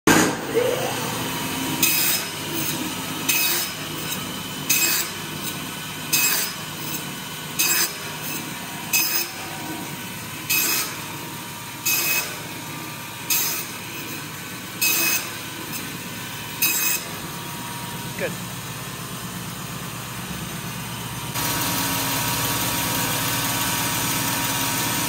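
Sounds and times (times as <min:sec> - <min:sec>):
saw rasping through wood: 0:00.1 - 0:17.4
band saw motor humming: 0:00.1 - 0:25.0.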